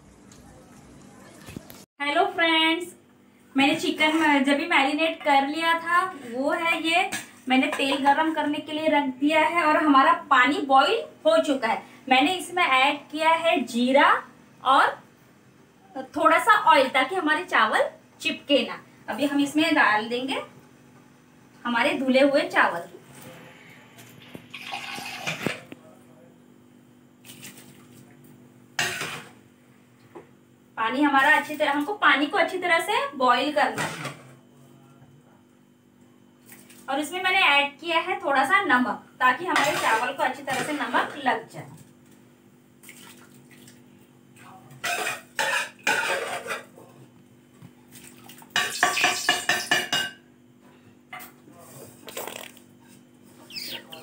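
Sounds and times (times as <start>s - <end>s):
metal utensils clanking on pot: 44.8s - 46.7s.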